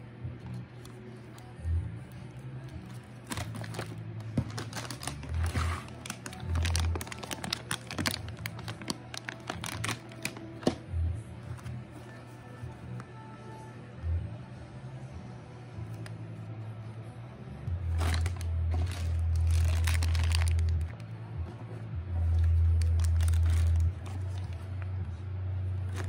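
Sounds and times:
quiet background music: 0.0 - 26.0
plastic snack bag crinkling: 3.2 - 10.8, 17.9 - 21.0, 22.4 - 24.8.

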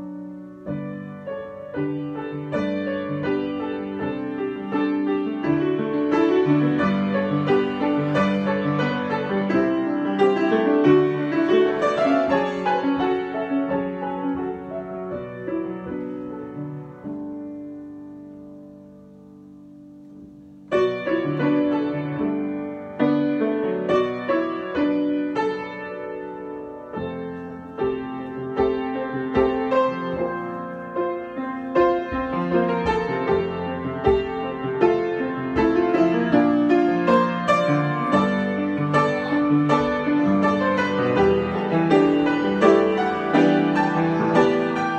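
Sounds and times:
grand piano playing: 0.0 - 44.9.

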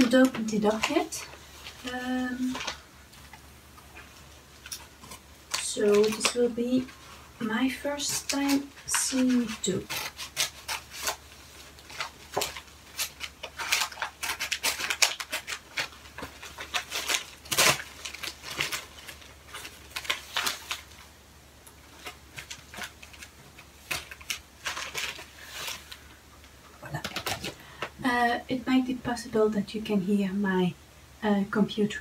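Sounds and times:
paper envelope crinkling: 0.0 - 27.9
scissors snipping paper: 8.0 - 11.2.

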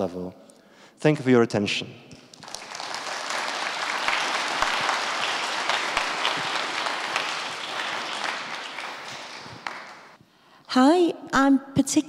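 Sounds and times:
audience applauding: 2.3 - 10.2.

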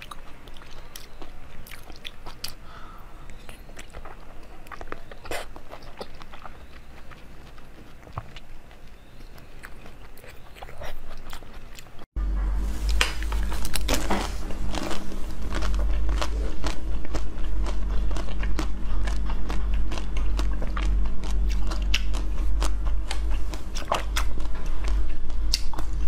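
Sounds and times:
chewing and crunching food: 0.0 - 26.0
steady low hum: 0.0 - 26.0.

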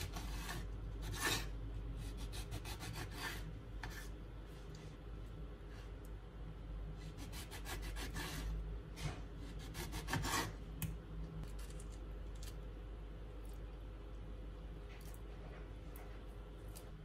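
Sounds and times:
knife sawing through fruit: 7.1 - 8.5, 9.4 - 10.6.

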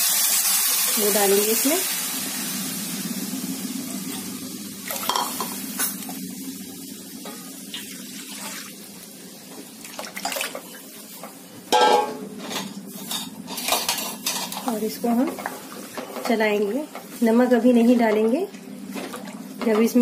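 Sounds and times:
utensils clattering on pan: 10.2 - 17.2.

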